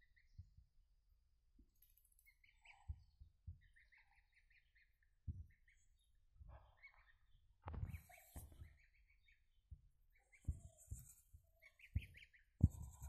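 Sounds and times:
goslings peeping: 10.1s - 13.0s.

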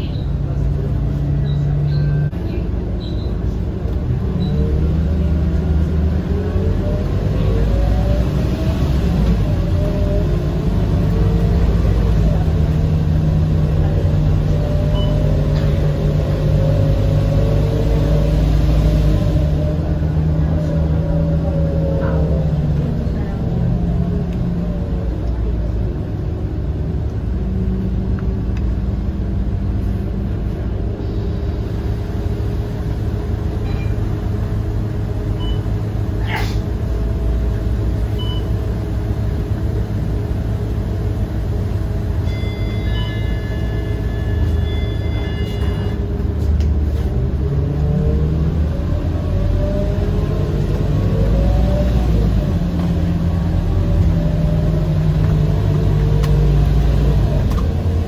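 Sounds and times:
bus diesel engine: 0.0s - 58.0s
high beeps: 42.2s - 46.0s.

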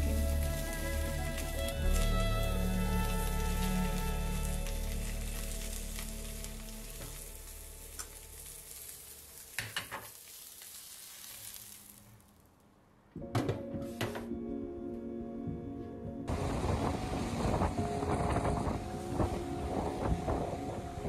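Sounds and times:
background music: 0.0s - 9.0s, 13.2s - 21.0s
food sizzling in a pan: 0.0s - 12.4s.

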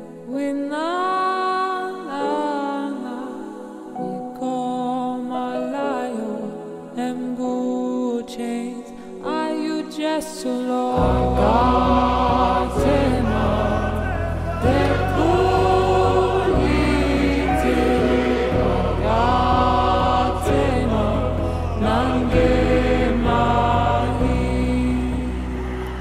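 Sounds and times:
slow choir-like song: 0.0s - 26.0s
held bass notes: 11.0s - 26.0s.

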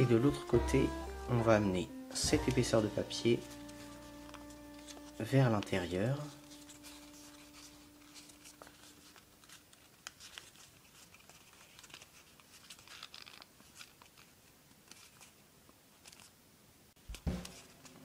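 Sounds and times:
paper crinkling and crackling: 3.4s - 16.4s.

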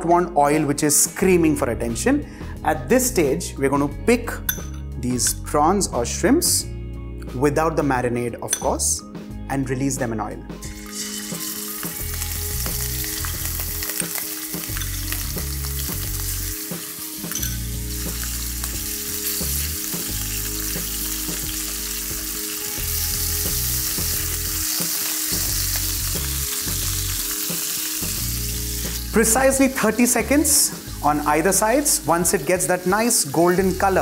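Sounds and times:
shrimp sizzling in oil: 10.6s - 34.0s.

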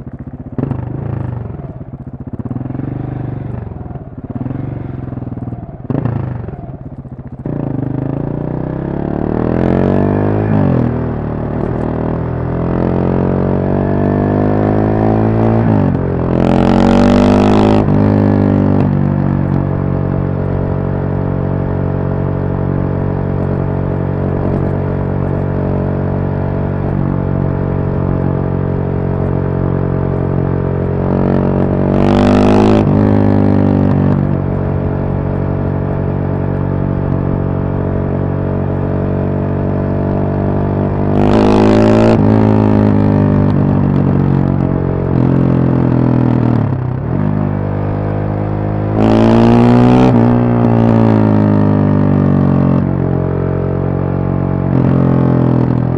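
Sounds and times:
motorcycle engine cruising: 0.0s - 55.9s.

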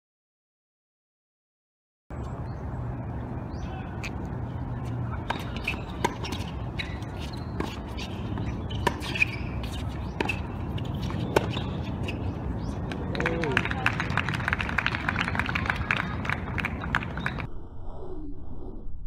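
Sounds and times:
ball bouncing on court: 5.2s - 13.3s
tennis rackets hitting ball: 5.2s - 13.6s.

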